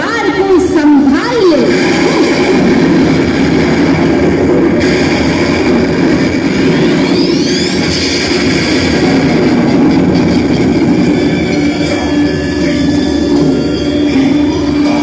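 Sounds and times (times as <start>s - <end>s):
loud roaring sound effect: 1.1s - 15.0s
rising whistle: 6.8s - 8.3s, 10.6s - 15.0s.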